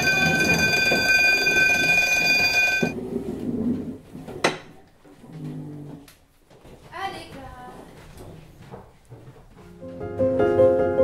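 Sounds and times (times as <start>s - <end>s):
electric school bell ringing: 0.0s - 3.0s.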